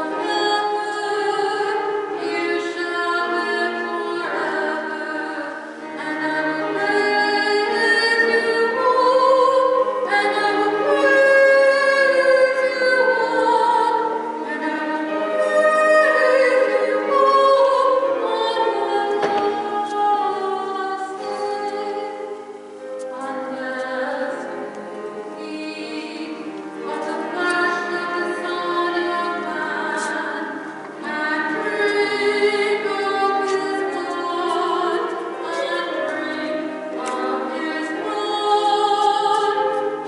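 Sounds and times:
hymn singing: 0.0s - 40.0s.

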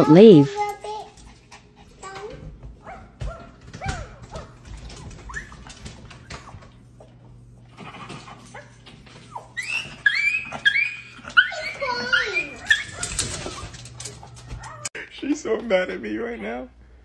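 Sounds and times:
small dog whining: 3.8s - 6.7s, 9.2s - 13.8s.

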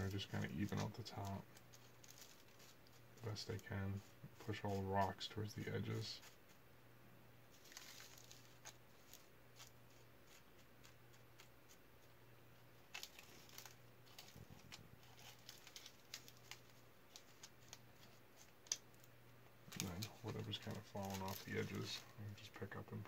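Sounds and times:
wax paper rustling: 0.0s - 6.6s, 7.5s - 22.7s
low steady hum: 0.0s - 23.0s
pebbles ticking together: 19.7s - 22.0s.

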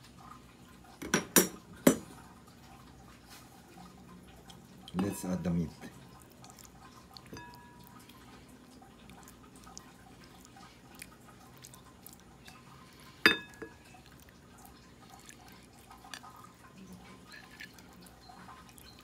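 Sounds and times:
wet hand mixing sounds: 2.2s - 19.0s
clink against ceramic bowl: 7.4s - 7.8s, 13.3s - 13.8s.

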